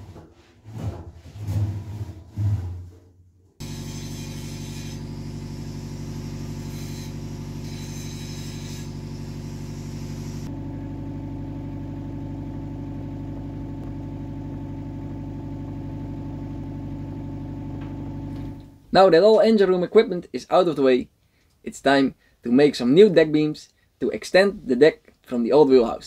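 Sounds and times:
mechanical drone: 3.6s - 11.0s.

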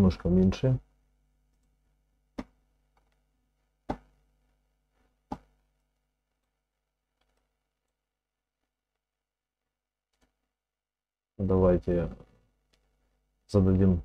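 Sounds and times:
faint electrical hum: 0.0s - 8.0s, 11.4s - 14.0s.

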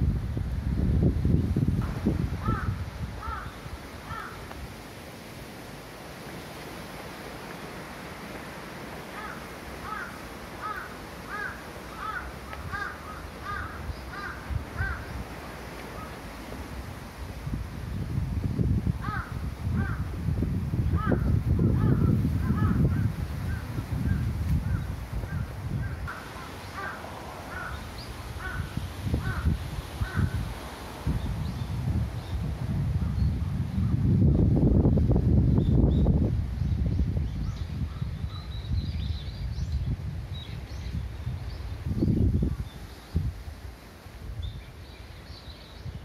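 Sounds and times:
crow cawing: 2.4s - 4.4s, 9.2s - 15.1s, 19.0s - 20.0s, 25.3s - 30.4s.

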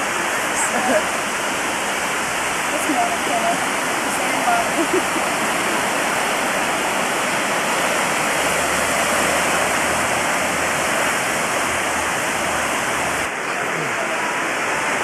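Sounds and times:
ocean surf rushing: 0.0s - 15.0s.

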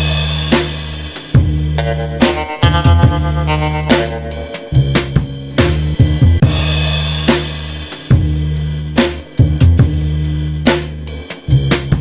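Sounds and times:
drum kit beat: 0.0s - 12.0s
low bass line: 1.4s - 7.0s
sustained pitched notes: 1.8s - 5.6s.

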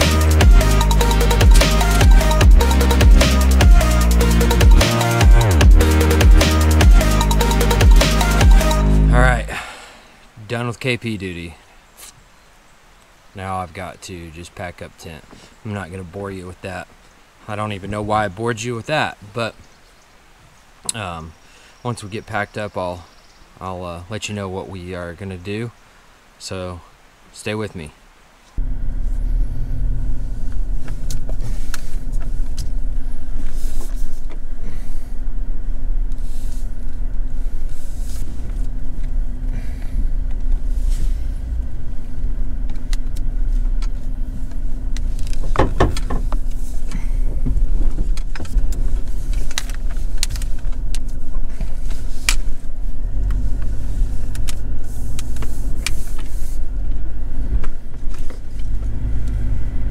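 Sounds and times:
truck engine drone: 0.0s - 10.4s, 28.6s - 59.9s
knocks and rattles over bumps: 41.5s - 52.4s.

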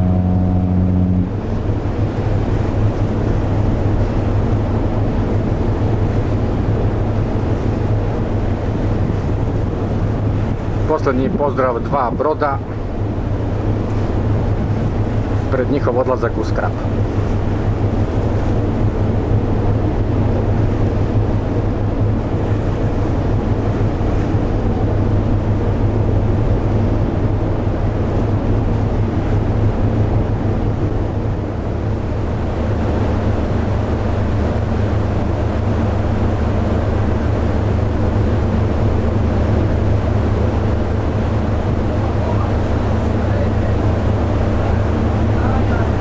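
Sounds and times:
wind noise on microphone: 0.0s - 15.5s
ship engine droning: 0.0s - 46.0s.

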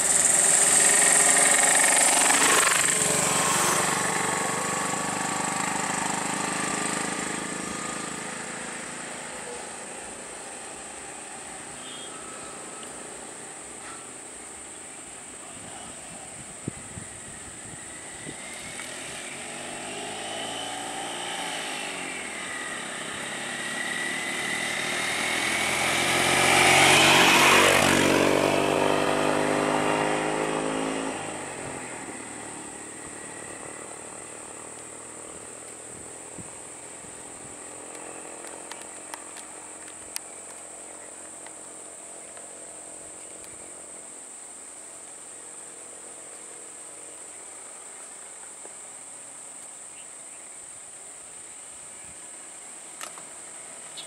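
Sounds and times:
high-pitched insect drone: 0.0s - 3.8s, 5.5s - 54.0s
small truck passing by: 0.0s - 14.0s, 16.5s - 40.0s.

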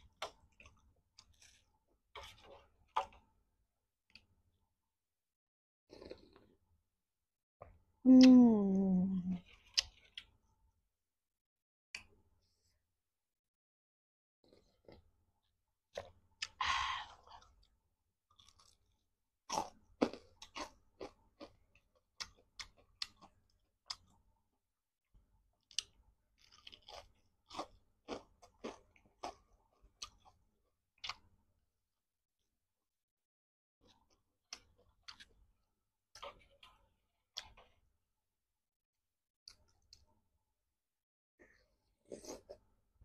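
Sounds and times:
crunching fried chicken: 25.6s - 30.4s.

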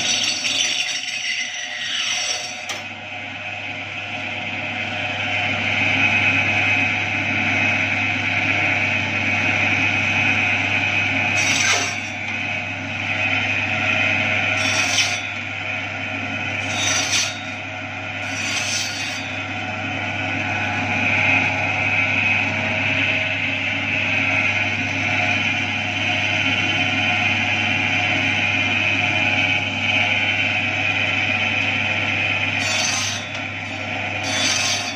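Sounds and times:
blade rasping cuts: 0.0s - 2.8s, 11.3s - 12.4s, 14.5s - 15.6s, 16.6s - 19.6s, 32.5s - 34.9s.

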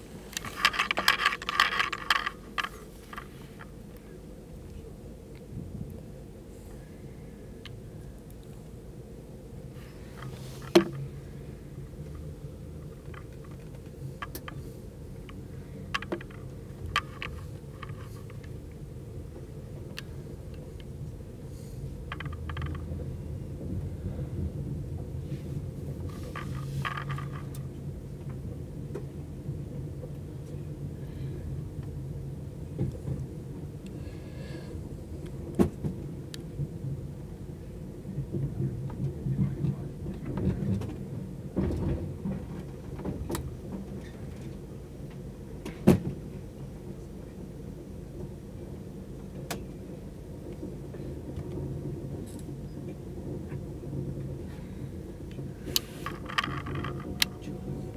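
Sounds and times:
train wheels rumbling on track: 0.0s - 57.9s
short clicks and rattles: 0.3s - 3.7s, 55.6s - 57.6s
clicks and knocks from track: 38.3s - 46.4s, 55.2s - 57.9s.

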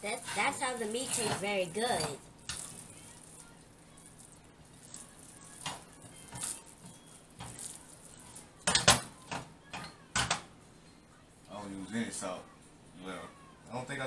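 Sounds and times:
metal plate clinking on grate: 0.1s - 2.9s.

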